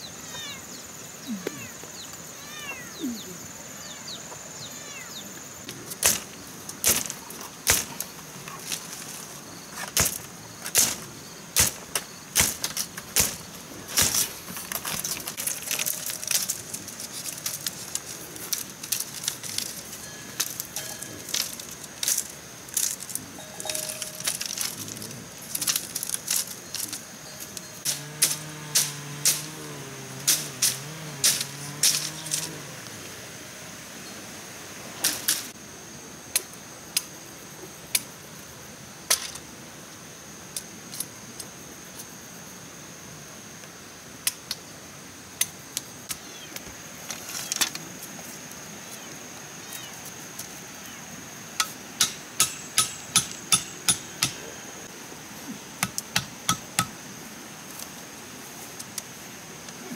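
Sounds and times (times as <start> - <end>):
bamboo strips clacking: 5.9 - 32.7, 51.6 - 54.5.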